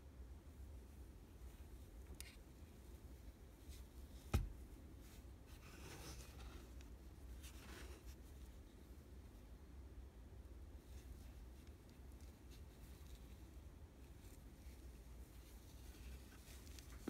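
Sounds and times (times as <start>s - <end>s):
low steady hum: 0.0s - 17.0s
gloved hands rustling: 10.8s - 17.0s.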